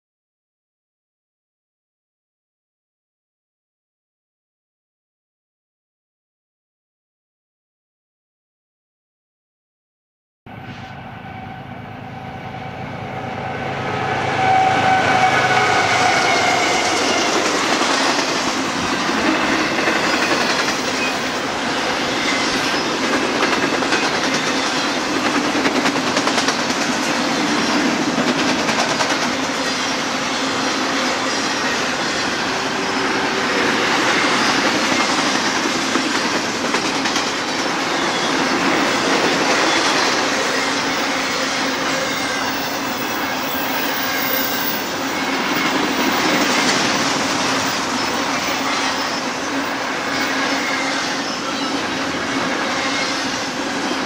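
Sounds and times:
train wheels rumbling and clattering: 14.4 - 54.0.

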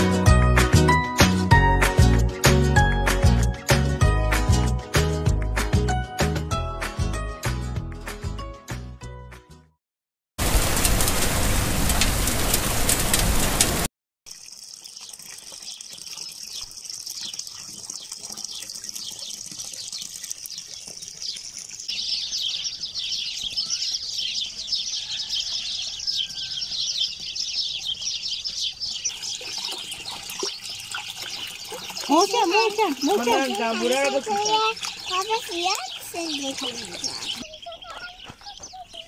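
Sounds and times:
water pouring into pool: 10.4 - 22.5, 29.1 - 37.5
birds chirping: 14.4 - 39.0.

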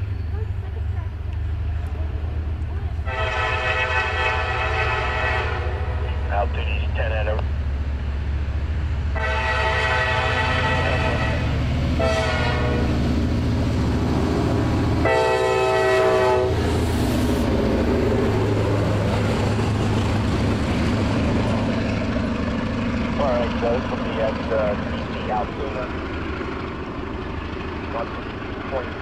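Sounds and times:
diesel engines running: 0.0 - 29.0
train rumble: 0.0 - 29.0
train air horn: 3.1 - 6.2, 9.2 - 13.0, 15.0 - 16.6.

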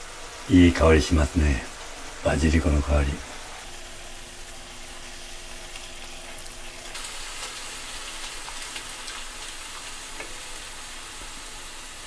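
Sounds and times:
sauce simmering with popping bubbles: 3.6 - 12.0.

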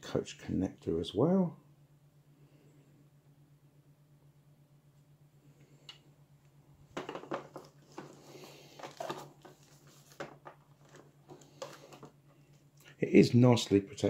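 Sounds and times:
faint low hum: 0.0 - 14.0
plastic wrap crinkling: 7.0 - 12.1.

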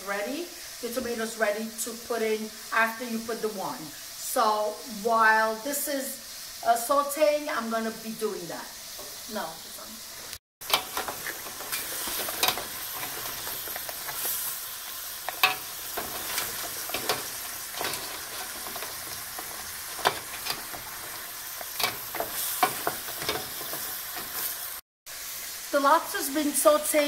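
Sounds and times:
lobster sizzling in oil: 0.0 - 27.0
sharp clicks and knocks: 10.6 - 14.2, 15.3 - 24.4
wooden spoon stirring: 15.2 - 24.6.

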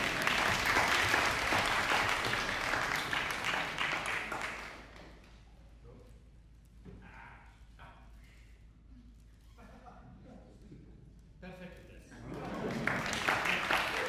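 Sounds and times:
applause: 0.0 - 5.2, 12.3 - 14.0.

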